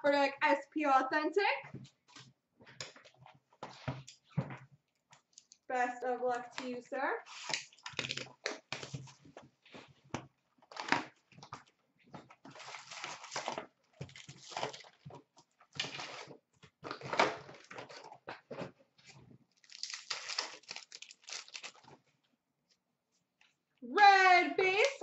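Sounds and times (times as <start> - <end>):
cardboard and wrappers tearing: 7.3 - 9.1, 12.5 - 15.0, 15.7 - 18.2, 19.6 - 22.0
wrappers rustling and crinkling: 12.5 - 22.0.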